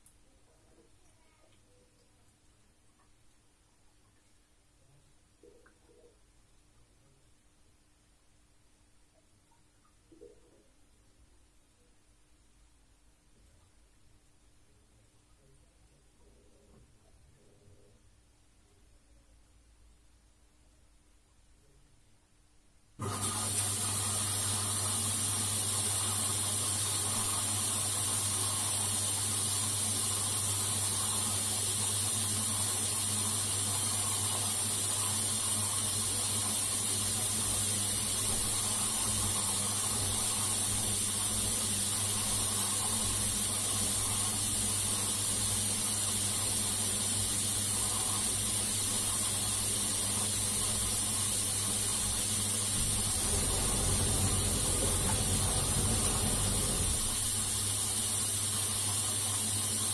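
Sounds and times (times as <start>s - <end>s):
drain pump humming: 23.0s - 59.9s
water rushing: 49.9s - 58.4s
low rumble: 52.8s - 57.4s.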